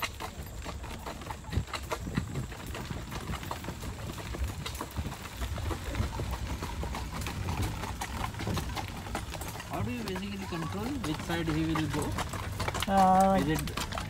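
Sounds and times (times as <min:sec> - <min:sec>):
buggy wheels rumbling on gravel: 0:00.0 - 0:14.0
horse hooves clip-clopping: 0:00.0 - 0:14.0.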